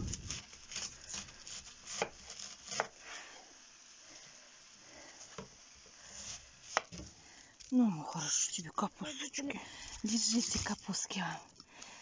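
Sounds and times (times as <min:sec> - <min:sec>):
knife cutting cabbage: 0:00.0 - 0:03.1.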